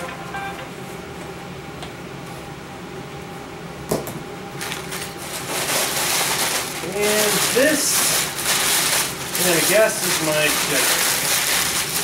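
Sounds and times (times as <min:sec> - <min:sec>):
low room hum: 0:00.0 - 0:12.0
packing paper crinkling: 0:04.6 - 0:12.0.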